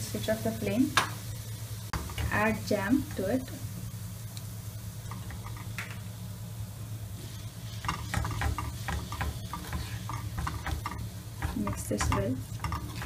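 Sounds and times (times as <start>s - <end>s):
steady low hum: 0.0s - 13.0s
spoon scraping a pan: 7.3s - 13.0s.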